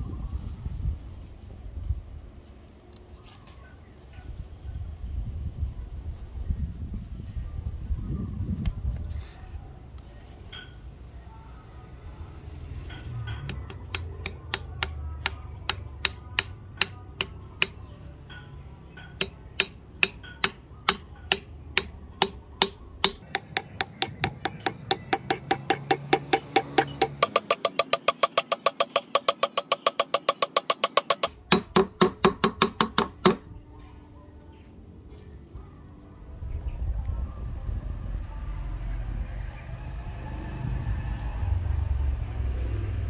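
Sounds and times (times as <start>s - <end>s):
hammer tapping wooden wedge: 13.2s - 17.8s, 19.0s - 33.4s.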